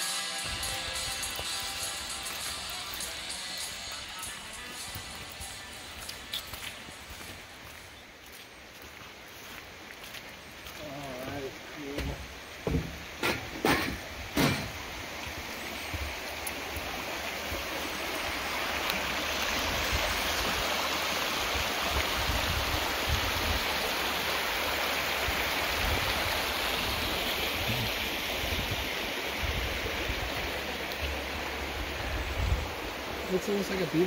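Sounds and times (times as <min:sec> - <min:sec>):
creek water rushing over rocks: 0:00.0 - 0:34.0
footstep on wooden footbridge: 0:11.9 - 0:14.8.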